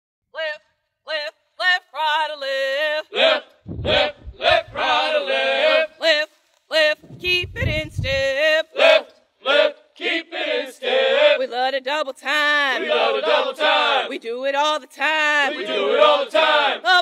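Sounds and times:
men chanting marching call: 3.1s - 6.0s, 8.7s - 11.4s, 12.8s - 14.1s, 15.5s - 17.0s
low rumble: 3.7s - 5.1s, 7.0s - 8.3s.

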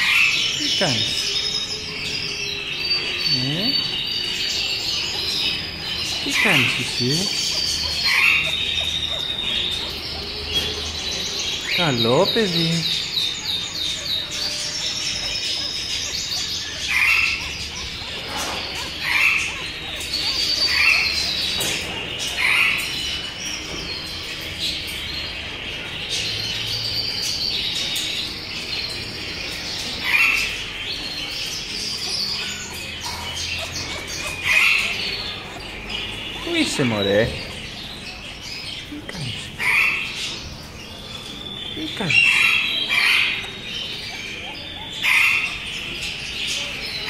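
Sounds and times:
birds chirping and twittering: 0.0s - 47.0s.

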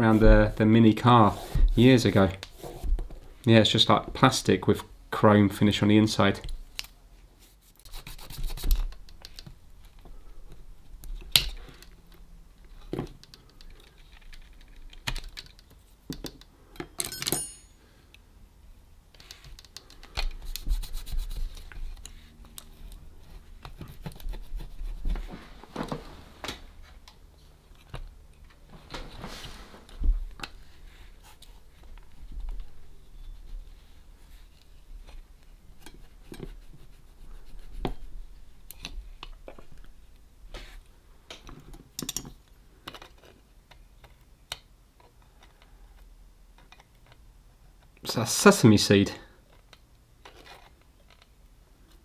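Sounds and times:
clicks and knocks on plastic parts: 12.9s - 17.2s
scraping and rubbing: 20.4s - 27.6s, 28.8s - 30.0s.

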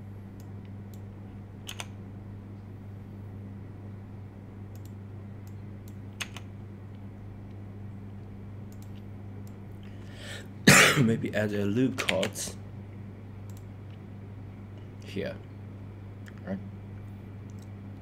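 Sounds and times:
steady low hum: 0.0s - 18.0s
mouse and keyboard clicks: 1.7s - 1.9s.

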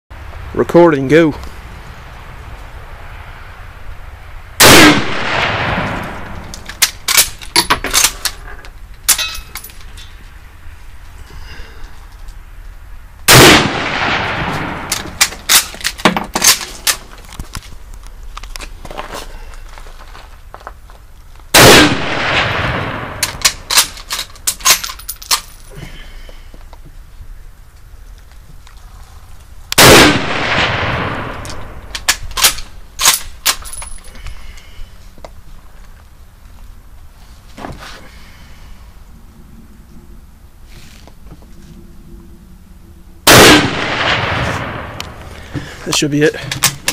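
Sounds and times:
rifle shot with echo: 4.6s - 6.4s, 13.3s - 14.9s, 21.5s - 23.2s, 29.8s - 31.8s, 43.2s - 45.2s
rifle bolt metallic clacks: 5.9s - 8.4s, 23.2s - 25.6s, 31.4s - 34.0s.

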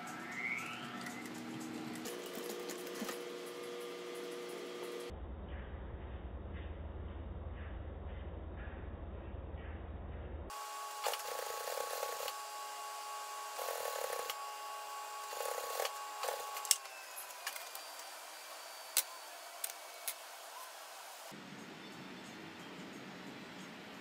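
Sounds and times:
sewing machine motor humming: 10.5s - 21.3s.

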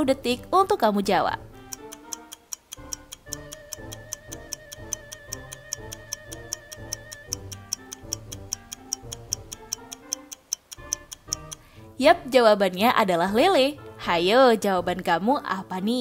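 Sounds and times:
light background music with bass: 0.0s - 16.0s
quick even ticking: 1.4s - 12.3s.

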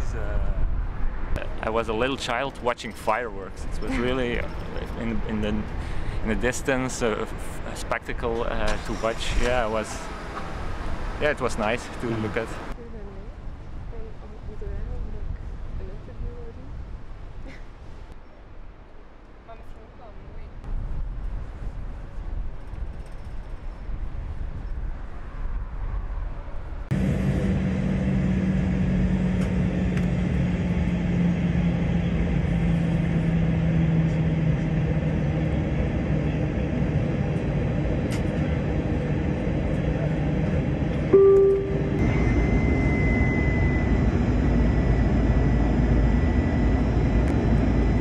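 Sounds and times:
aircraft engines droning: 0.0s - 13.1s, 26.4s - 48.0s
high thin whine: 41.1s - 44.6s
loud tone: 41.1s - 46.2s.

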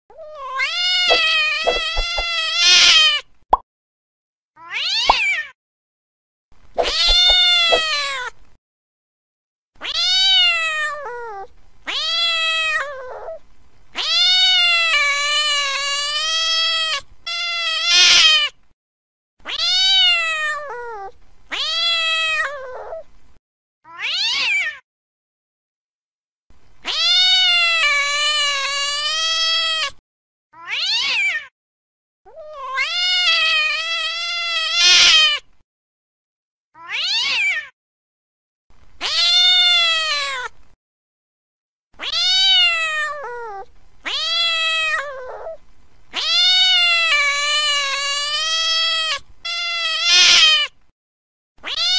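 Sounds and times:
cat screeches: 0.2s - 3.2s, 6.8s - 8.3s, 14.0s - 18.5s, 19.4s - 23.0s, 23.9s - 24.8s, 26.8s - 29.9s, 30.6s - 31.5s, 32.3s - 35.4s, 36.8s - 37.7s, 39.0s - 40.5s, 42.0s - 50.8s, 51.6s - 51.9s
cats yowling: 0.2s - 3.2s, 6.8s - 8.3s, 9.8s - 13.4s, 14.0s - 18.5s, 19.4s - 23.0s, 23.9s - 24.8s, 26.8s - 29.9s, 30.6s - 31.5s, 32.3s - 35.4s, 36.8s - 37.7s, 39.0s - 40.5s, 42.0s - 50.8s, 51.6s - 51.9s.

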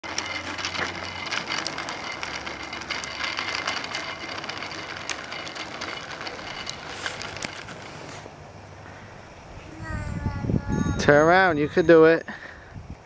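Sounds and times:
bicycle rattling over asphalt: 0.0s - 8.4s.

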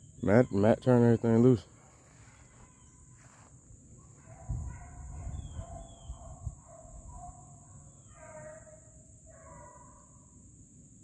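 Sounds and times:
high insect drone: 0.0s - 11.0s
hounds baying: 4.0s - 10.1s.

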